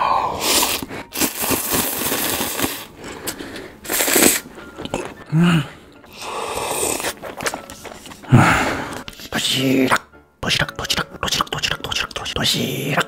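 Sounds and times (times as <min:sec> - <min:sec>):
broth sipped noisily: 0:00.0 - 0:05.2, 0:06.1 - 0:09.1
slurping noodles: 0:00.0 - 0:09.1
sucking and chewing: 0:00.3 - 0:10.1
person humming: 0:05.0 - 0:07.4.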